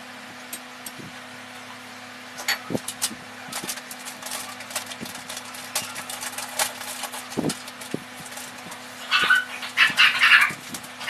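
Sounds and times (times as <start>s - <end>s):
steady low hum: 0.0s - 11.0s
small clicks and crackles: 2.4s - 11.0s.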